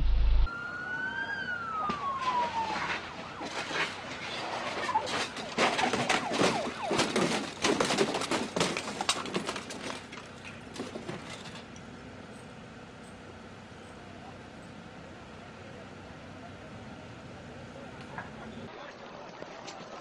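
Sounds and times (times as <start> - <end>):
police siren falling in pitch: 0.0 - 3.8, 4.8 - 7.4.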